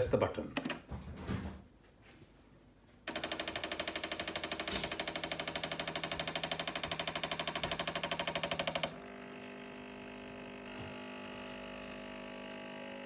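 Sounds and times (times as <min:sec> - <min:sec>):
coffee machine pump pulsing: 0:03.1 - 0:13.0.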